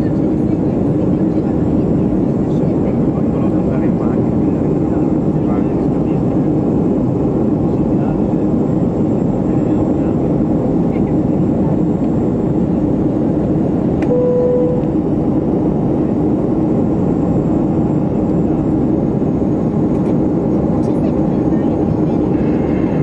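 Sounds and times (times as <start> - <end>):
airplane cabin noise: 0.0 - 23.0
short single-pitched tone: 14.0 - 15.3.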